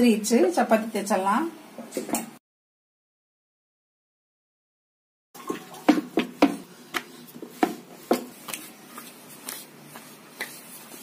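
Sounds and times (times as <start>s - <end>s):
dough rolled on wooden board: 5.8s - 11.0s.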